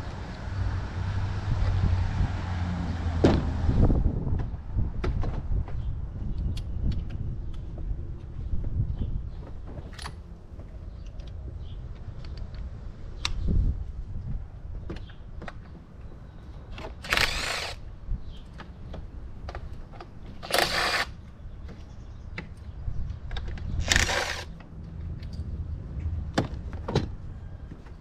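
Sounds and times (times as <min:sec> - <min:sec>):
cordless power tool bursts: 0:17.0 - 0:17.8, 0:20.4 - 0:21.1, 0:23.8 - 0:24.5.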